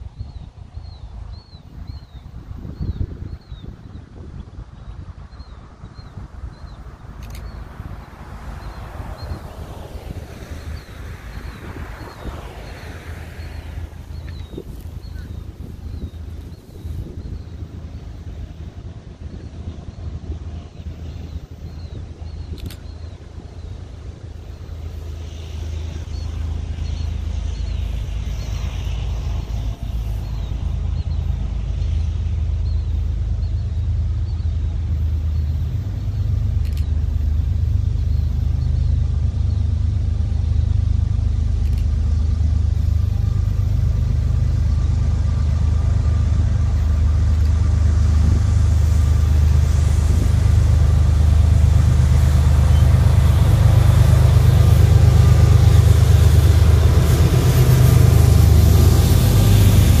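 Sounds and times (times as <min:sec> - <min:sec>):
diesel locomotive engine: 0:00.0 - 1:00.0.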